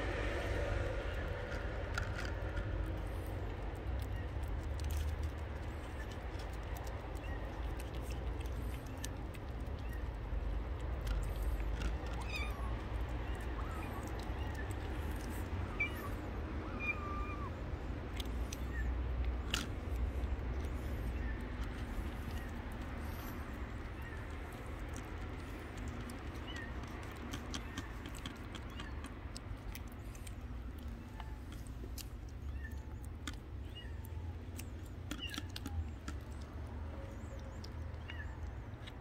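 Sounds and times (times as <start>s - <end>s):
steady low rumble: 0.0s - 39.0s
cat meowing: 12.0s - 14.8s, 15.7s - 17.7s, 32.4s - 34.5s.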